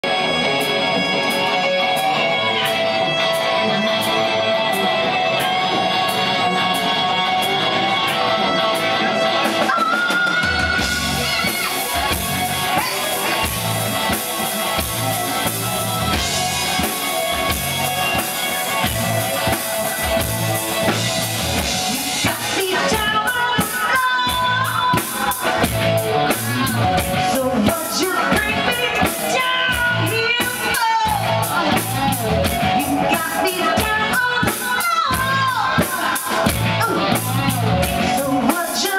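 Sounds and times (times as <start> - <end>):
bass: 0.0 - 38.9
drum kit beat: 0.0 - 38.9
electric guitar: 0.0 - 38.9
keyboard: 0.0 - 38.9
woman singing lead vocal: 9.6 - 11.7, 21.9 - 25.6, 27.1 - 38.9.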